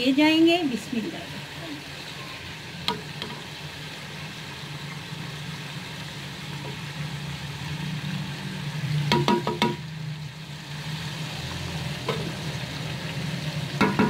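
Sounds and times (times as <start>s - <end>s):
faint frying sizzle: 0.0s - 14.0s
wooden spoon knocking metal pot: 9.1s - 9.8s, 13.8s - 14.0s.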